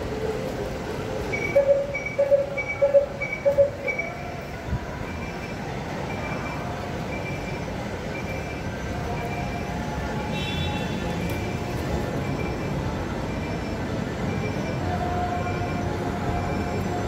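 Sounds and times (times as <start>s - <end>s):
steady background noise: 0.0s - 17.0s
short electronic beeps: 1.3s - 4.3s.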